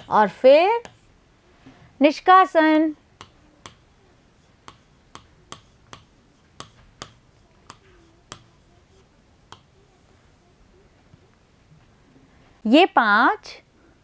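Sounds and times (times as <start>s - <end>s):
stylus tapping on screen: 3.2s - 3.9s, 4.6s - 8.6s, 9.5s - 9.7s.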